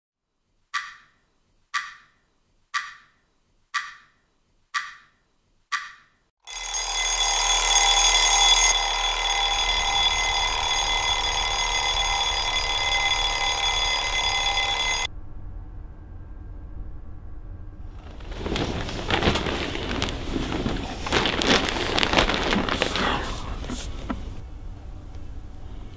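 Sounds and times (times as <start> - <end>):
loud sustained alarm ringing: 6.4 - 17.9
phone alarm chimes: 6.5 - 15.1.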